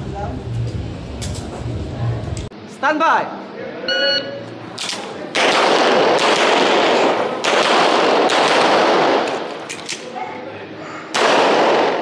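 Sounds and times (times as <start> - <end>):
pistol shots: 4.8 - 10.1, 11.1 - 12.0.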